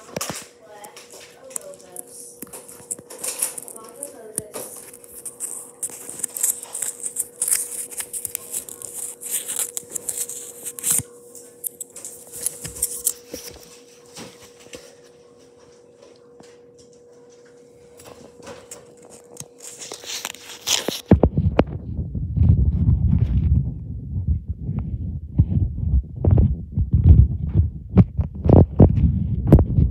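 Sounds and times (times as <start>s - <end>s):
packaging rustling and crinkling: 0.0s - 15.2s, 18.0s - 21.8s
faint steady hum: 0.0s - 29.9s
loud low rumble: 21.3s - 29.9s.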